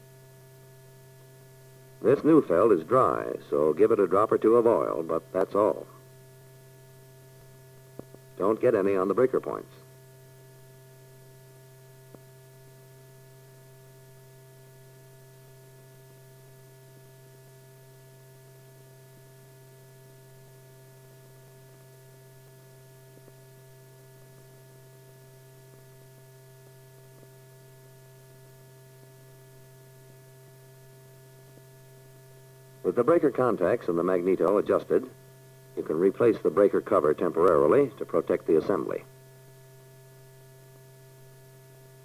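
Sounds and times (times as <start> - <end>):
low hiss: 0.0 - 16.9, 31.3 - 42.0
faint electrical hum: 0.0 - 42.0.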